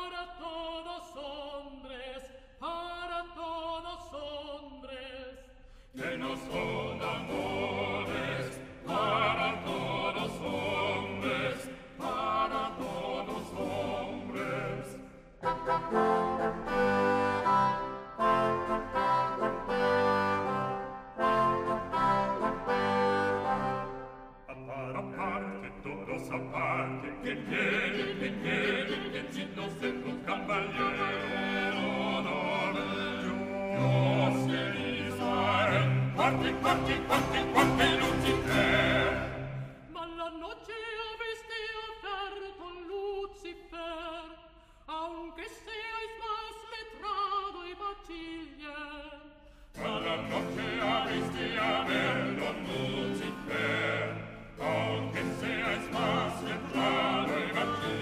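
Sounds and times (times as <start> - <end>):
vocal ensemble singing polyphony: 5.9 - 40.6, 49.7 - 58.0.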